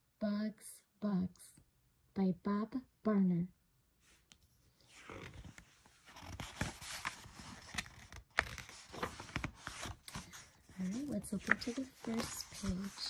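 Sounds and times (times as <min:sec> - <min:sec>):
book pages turning: 0:04.2 - 0:13.0.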